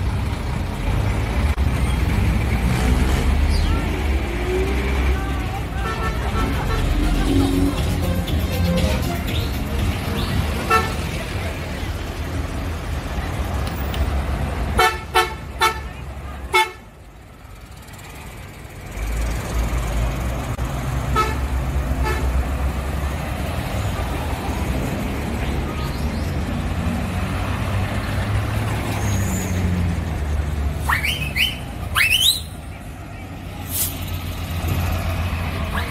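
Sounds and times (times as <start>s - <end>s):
bus engines rumbling: 0.0s - 35.9s
bus horn toots: 5.7s - 11.2s, 14.7s - 16.9s, 21.1s - 22.4s.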